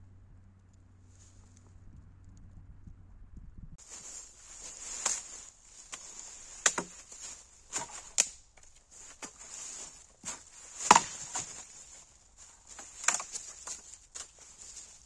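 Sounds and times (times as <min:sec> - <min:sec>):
sharp cracks and knocks: 0:03.8 - 0:15.0.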